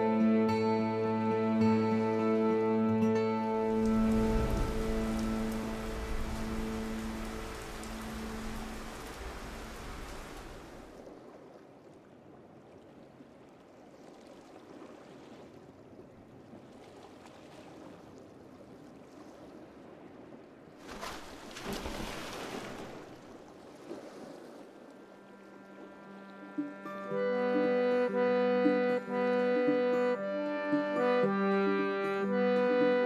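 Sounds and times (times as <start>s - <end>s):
waves washing: 3.4s - 33.0s.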